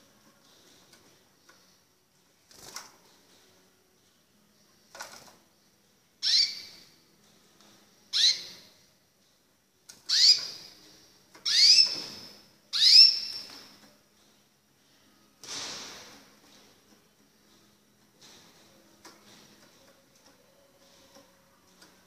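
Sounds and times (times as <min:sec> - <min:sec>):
canary chirping: 0:06.2 - 0:07.0, 0:08.1 - 0:08.8, 0:09.9 - 0:13.8.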